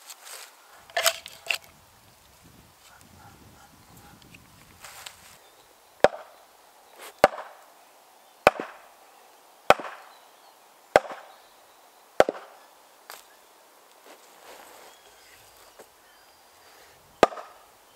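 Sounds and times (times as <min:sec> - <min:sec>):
maul knocking on axe in log: 0:17.2 - 0:17.5.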